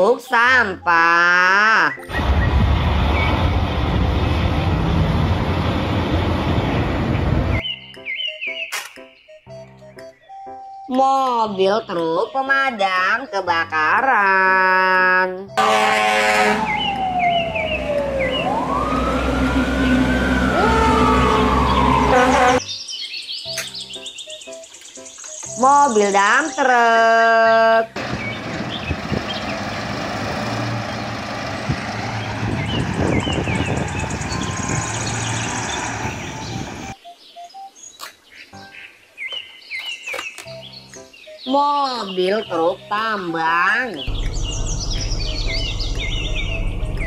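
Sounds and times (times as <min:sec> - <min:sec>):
birds chirping: 0:00.0 - 0:05.0, 0:06.4 - 0:14.8, 0:15.6 - 0:47.0
engines and traffic rumble: 0:01.8 - 0:07.6, 0:15.5 - 0:22.6, 0:27.8 - 0:37.0, 0:43.8 - 0:47.0
fire engine sirens wailing: 0:15.6 - 0:22.6, 0:28.0 - 0:37.0
siren yelp: 0:15.6 - 0:22.6, 0:36.1 - 0:37.0.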